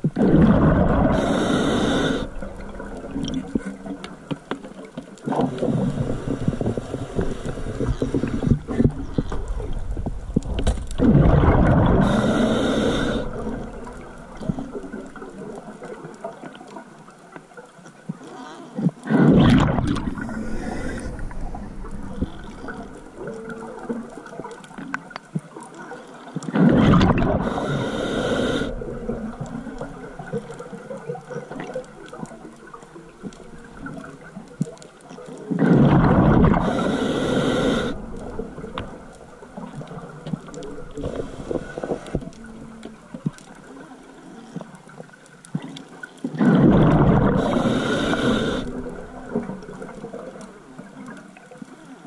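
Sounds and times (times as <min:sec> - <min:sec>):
low water noise: 0:00.0 - 0:52.0
scuba regulator bubbling breaths: 0:00.1 - 0:04.3, 0:05.3 - 0:10.0, 0:11.0 - 0:15.3, 0:18.7 - 0:23.8, 0:26.5 - 0:30.6, 0:35.6 - 0:42.8, 0:46.3 - 0:50.0.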